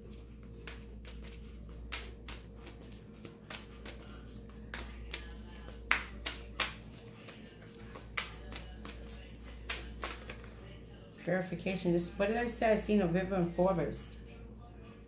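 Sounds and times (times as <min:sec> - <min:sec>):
cards being shuffled: 0:00.0 - 0:10.6.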